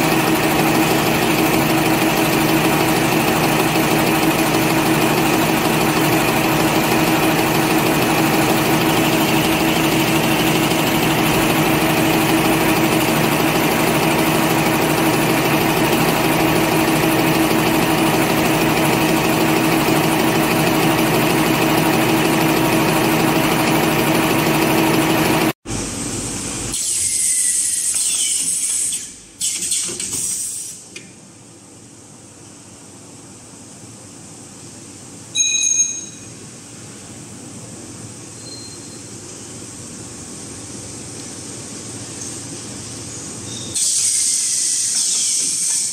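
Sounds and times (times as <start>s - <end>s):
paper folding machine running: 0.0s - 25.6s.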